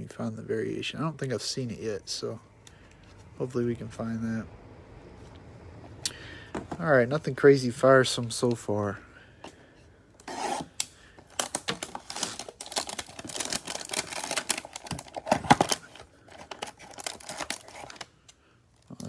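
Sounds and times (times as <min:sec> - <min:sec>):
cellophane crinkling: 0:11.2 - 0:18.2
cardboard tearing: 0:11.4 - 0:18.0.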